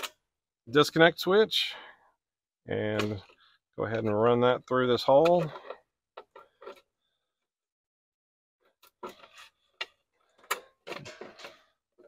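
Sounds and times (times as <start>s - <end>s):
wire rubbing and scraping: 8.8s - 12.0s.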